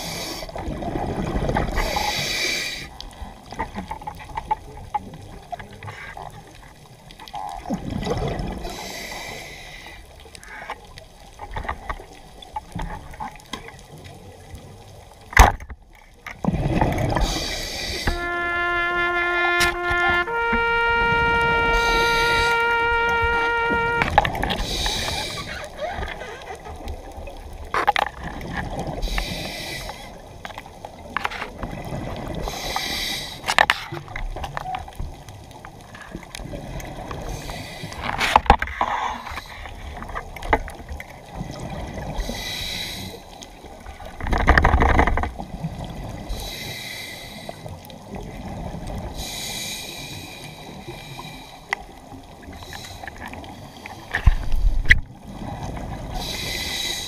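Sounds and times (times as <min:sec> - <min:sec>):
diver breathing hiss underwater: 0:00.0 - 0:00.6, 0:01.7 - 0:03.0, 0:08.6 - 0:10.6, 0:17.1 - 0:19.1, 0:21.7 - 0:22.8, 0:24.5 - 0:25.8, 0:28.9 - 0:30.2, 0:32.4 - 0:33.6, 0:37.2 - 0:38.2, 0:42.1 - 0:43.4, 0:46.3 - 0:47.8, 0:49.1 - 0:51.7, 0:52.5 - 0:54.2, 0:56.2 - 0:57.0
rush of bubbles: 0:00.5 - 0:02.1, 0:07.5 - 0:09.8, 0:16.4 - 0:30.4, 0:31.5 - 0:34.2.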